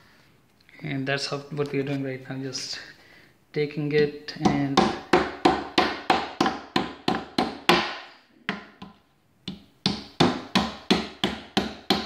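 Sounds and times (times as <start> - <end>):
hammer tapping plastic dowels: 4.3 - 12.0.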